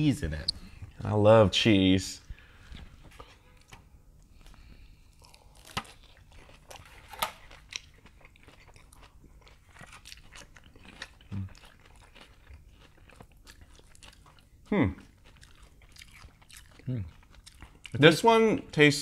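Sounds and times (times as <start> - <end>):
chewing and crunching vegetables: 2.6 - 18.5.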